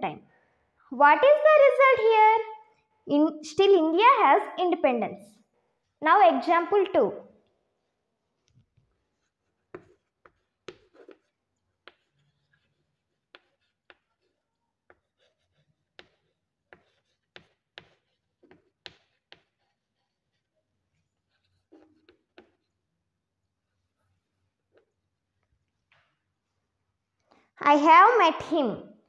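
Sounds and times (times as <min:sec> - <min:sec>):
chalk writing on chalkboard: 0:07.7 - 0:22.9, 0:23.5 - 0:26.2.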